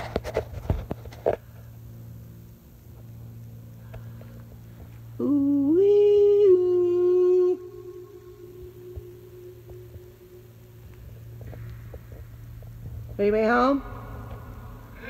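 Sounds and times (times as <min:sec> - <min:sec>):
person humming: 0:05.2 - 0:10.8.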